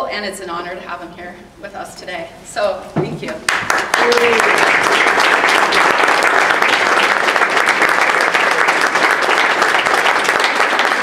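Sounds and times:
audience applauding: 0:03.5 - 0:11.0.

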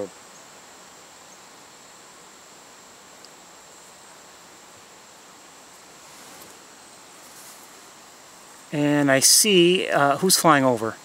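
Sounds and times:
high-pitched insect trill: 0:00.0 - 0:11.0
outdoor background noise: 0:00.0 - 0:11.0.

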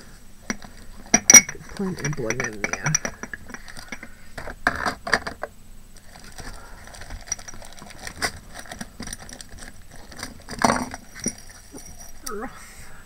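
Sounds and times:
craft embellishments clinking: 0:00.4 - 0:04.5, 0:06.0 - 0:12.4.

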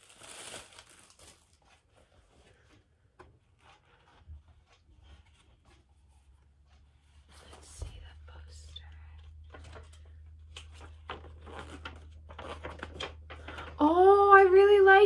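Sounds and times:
paper and packaging rustling: 0:00.0 - 0:02.7, 0:07.0 - 0:15.0.

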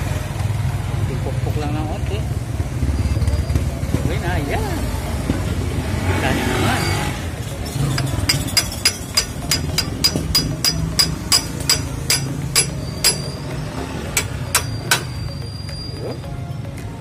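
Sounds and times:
hammer tapping metal: 0:07.7 - 0:15.3.

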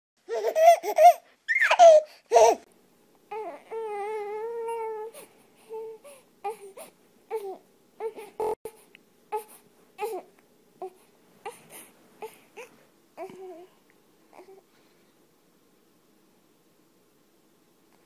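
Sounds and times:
infant crying: 0:03.3 - 0:08.6.

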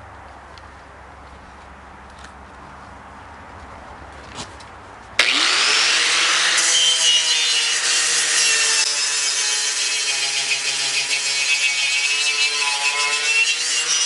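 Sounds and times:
angle grinder wire brush scrubbing metal: 0:05.2 - 0:14.0.

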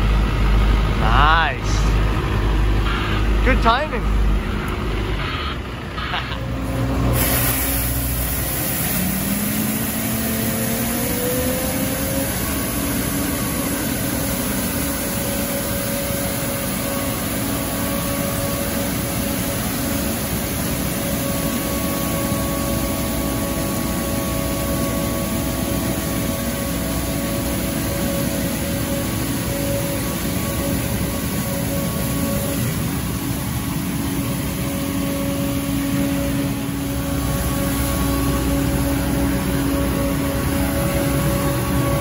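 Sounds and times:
street sweeper engine running: 0:00.0 - 0:42.0.

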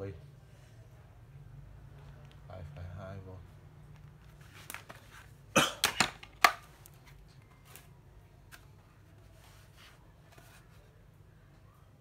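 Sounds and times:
man coughing: 0:05.5 - 0:06.0.

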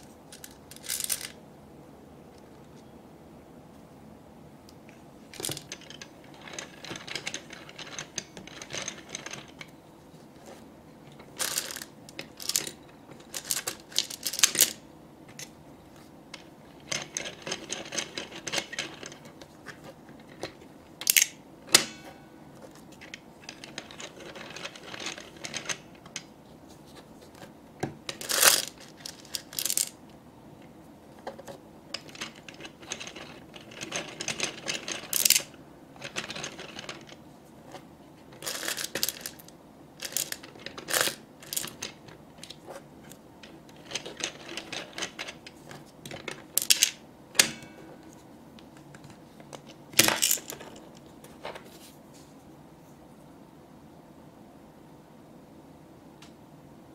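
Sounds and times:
toy claw mechanism rattling: 0:00.3 - 0:01.4, 0:05.3 - 0:09.7, 0:11.2 - 0:14.8, 0:16.4 - 0:19.3, 0:20.2 - 0:22.0, 0:23.1 - 0:25.9, 0:28.1 - 0:30.0, 0:31.9 - 0:37.2, 0:38.4 - 0:42.6, 0:43.7 - 0:47.7, 0:49.6 - 0:51.0.

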